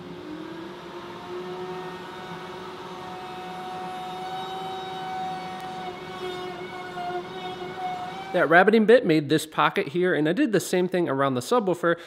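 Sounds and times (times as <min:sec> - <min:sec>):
router motor whine cutting wood: 0:00.0 - 0:08.5.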